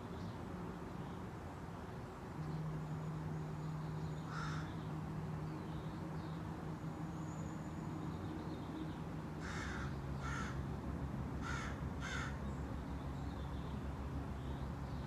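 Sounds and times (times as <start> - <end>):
crow cawing: 4.3 - 4.7, 9.4 - 10.6, 11.4 - 12.4.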